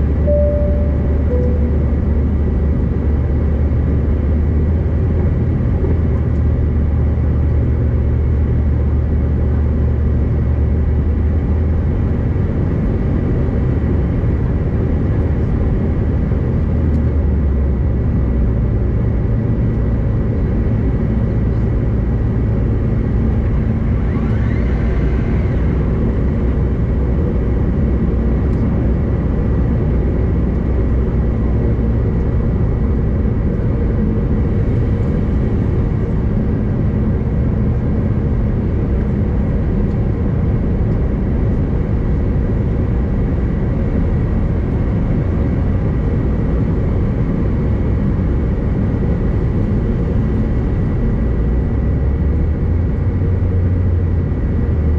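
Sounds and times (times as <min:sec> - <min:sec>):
thin steady whine: 0:00.0 - 0:03.0
jet cabin rumble: 0:00.0 - 0:54.9.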